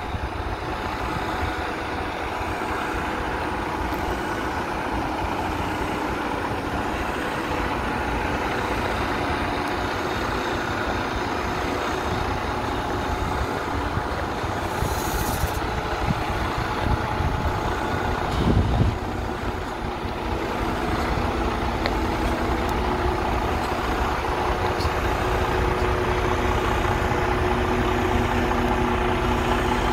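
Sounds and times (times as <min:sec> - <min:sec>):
diesel engine idling: 0:00.0 - 0:29.9
brief hiss: 0:14.7 - 0:15.6.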